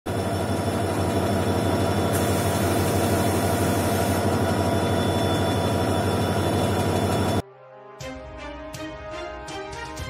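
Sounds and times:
locomotive low hum: 0:00.1 - 0:07.4.

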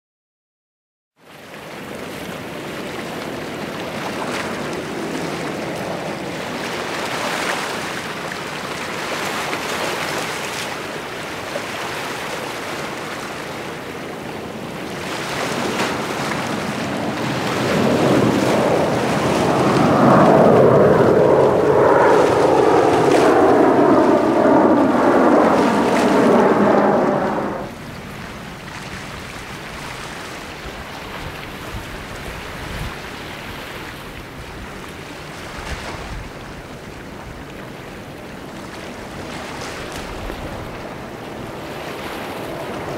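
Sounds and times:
distant jet roar: 0:13.6 - 0:28.0
jet passing overhead whoosh: 0:13.6 - 0:28.0.

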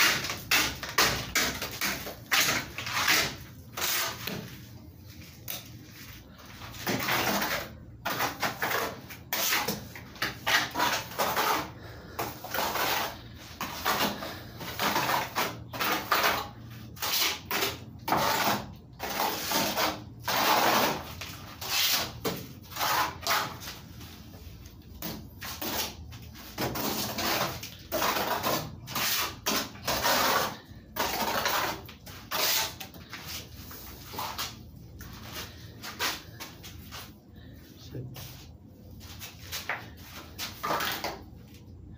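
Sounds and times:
trowel scraping plaster: 0:00.0 - 0:24.3, 0:25.0 - 0:34.6.

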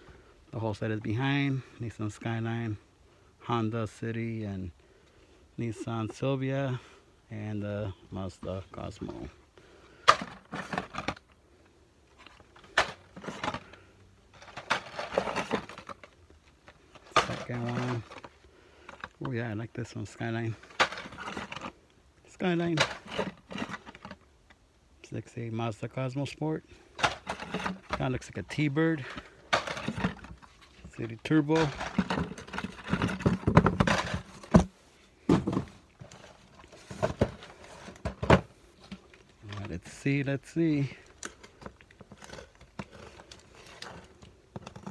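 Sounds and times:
cardboard rustling and knocking: 0:31.6 - 0:39.0.

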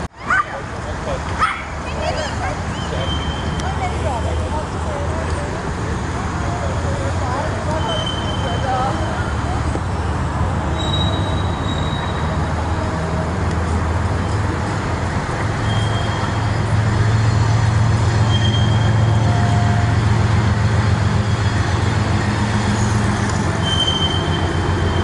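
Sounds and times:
road traffic: 0:00.0 - 0:25.0.

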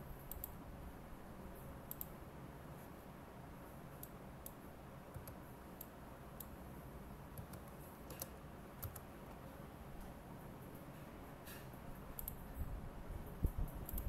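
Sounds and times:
low steady hiss: 0:00.0 - 0:14.0
mouse clicks: 0:00.3 - 0:00.6, 0:01.9 - 0:02.1, 0:12.2 - 0:12.4
keyboard keystrokes: 0:07.4 - 0:09.1.

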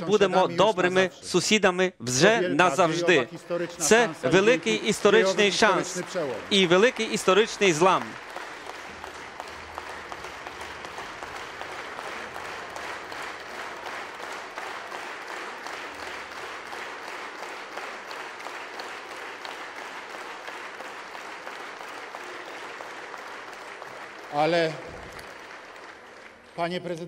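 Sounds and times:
crowd applauding: 0:02.7 - 0:27.0.

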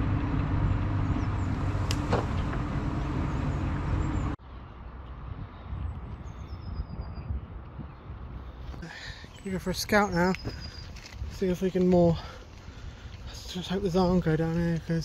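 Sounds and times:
engine humming: 0:00.0 - 0:05.1
outdoor background: 0:00.0 - 0:15.0.

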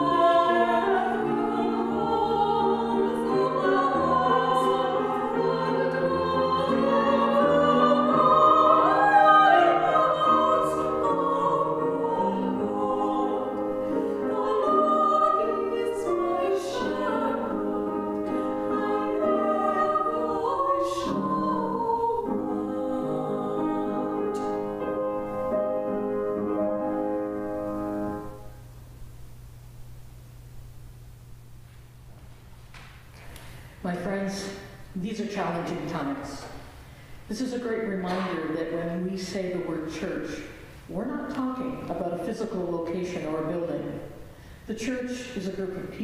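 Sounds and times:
women singing operatic duet: 0:00.0 - 0:24.8
grand piano accompaniment: 0:00.0 - 0:28.8.

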